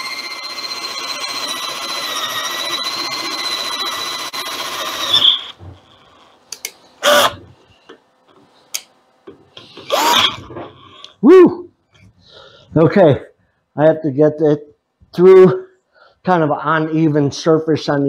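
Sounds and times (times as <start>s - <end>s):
cordless drill whining: 0.0s - 6.0s, 7.0s - 7.5s, 9.8s - 10.5s.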